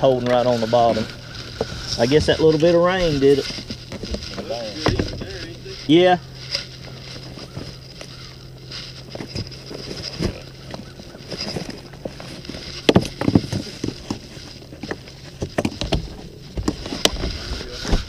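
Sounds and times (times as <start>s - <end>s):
bag rustling: 0.0s - 18.0s
items clicking and knocking: 9.0s - 17.4s.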